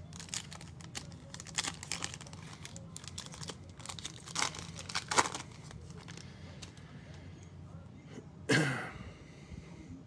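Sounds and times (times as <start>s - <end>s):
foil wrapper crinkling and tearing: 0.0s - 6.8s.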